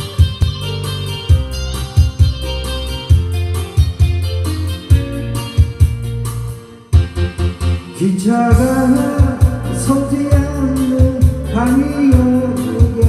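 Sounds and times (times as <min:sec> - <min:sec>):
recorded backing track: 0:00.0 - 0:13.0
man singing pop ballad: 0:07.9 - 0:13.0.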